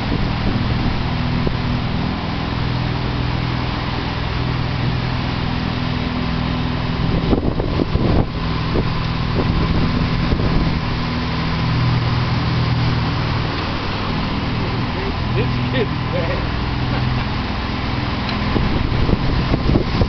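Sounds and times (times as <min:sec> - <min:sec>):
churning water wake: 0:00.0 - 0:20.0
motorboat engine droning: 0:00.0 - 0:20.0
wind rushing: 0:06.9 - 0:15.4, 0:18.4 - 0:20.0.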